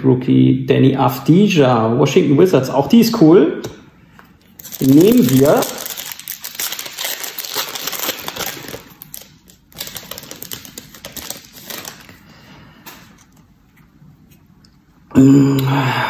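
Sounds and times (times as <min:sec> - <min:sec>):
foil pack crinkling and tearing: 0:04.6 - 0:12.3.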